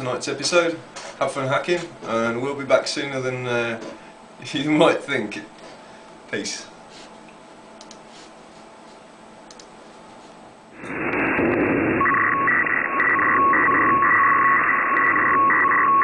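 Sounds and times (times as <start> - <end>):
static hiss: 10.8 - 14.2
high beeping tones: 11.9 - 16.0.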